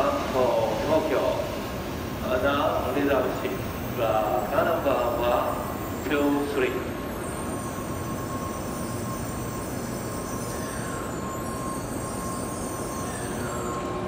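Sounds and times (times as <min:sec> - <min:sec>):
thin steady whine: 0:00.0 - 0:14.0
train rumbling and rolling: 0:00.0 - 0:14.0.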